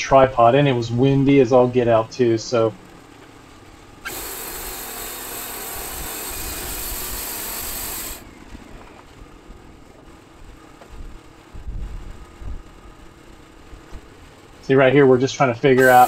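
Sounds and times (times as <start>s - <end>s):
sawmill machinery hissing: 4.0s - 8.9s, 15.7s - 16.0s
wind buffeting microphone: 10.4s - 12.9s.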